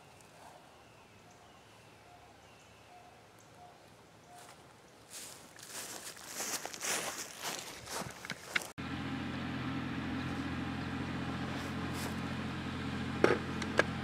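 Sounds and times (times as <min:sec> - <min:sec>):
rustling in grass: 0:04.4 - 0:08.7, 0:11.4 - 0:12.3
tractor engine droning: 0:08.5 - 0:14.0.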